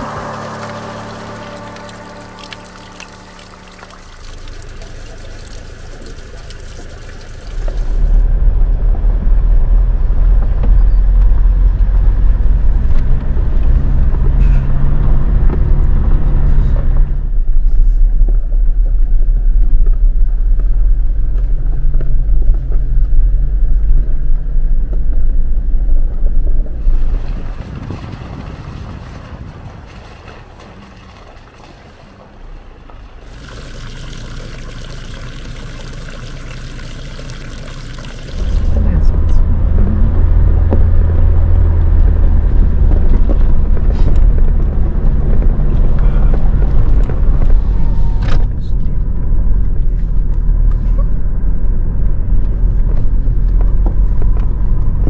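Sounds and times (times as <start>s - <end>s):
water trickling into a bottle: 0.0s - 8.1s, 33.2s - 38.8s
vehicle engine and tyres rumbling: 0.0s - 55.0s.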